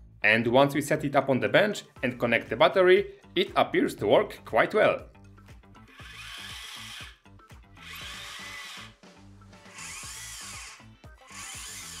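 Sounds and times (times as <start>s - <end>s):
small electric motors whirring: 5.9s - 7.2s, 7.8s - 9.0s, 9.6s - 12.0s.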